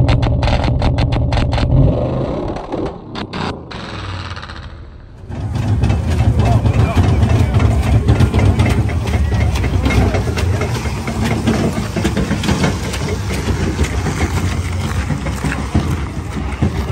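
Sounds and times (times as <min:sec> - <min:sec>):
engine idling: 0:04.6 - 0:16.9
crowd chatter: 0:05.2 - 0:16.9.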